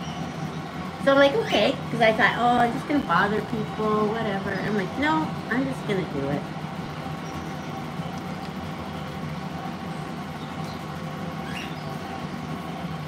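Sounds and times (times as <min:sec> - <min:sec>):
low room hum: 0:00.0 - 0:13.0
parrots chirping: 0:10.0 - 0:12.6.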